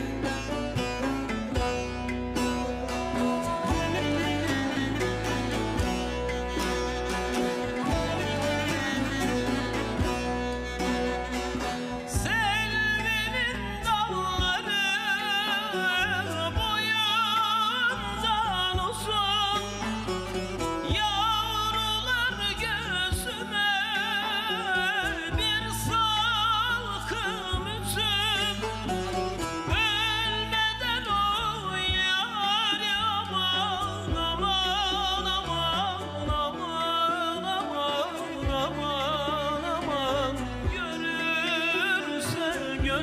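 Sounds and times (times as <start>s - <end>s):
long-necked lute and instruments: 0.0s - 43.0s
man singing folk song: 12.1s - 43.0s.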